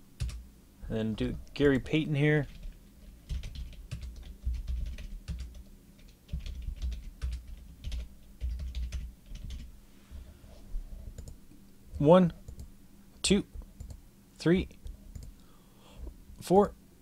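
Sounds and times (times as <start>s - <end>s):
typing on a keyboard: 2.5s - 9.7s, 11.2s - 11.4s, 15.1s - 15.4s.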